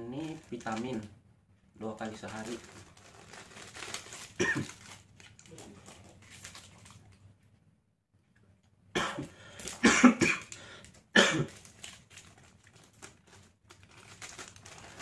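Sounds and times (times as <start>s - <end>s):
man coughing: 4.4s - 4.7s, 9.0s - 10.5s, 11.1s - 11.5s.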